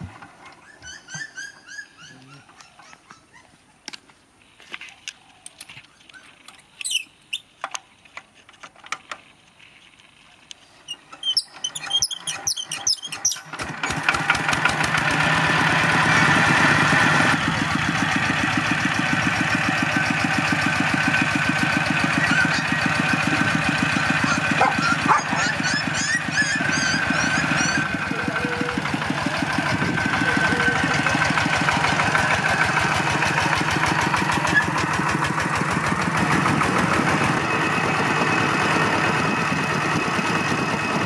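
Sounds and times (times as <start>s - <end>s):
diesel engine running: 11.3s - 41.0s.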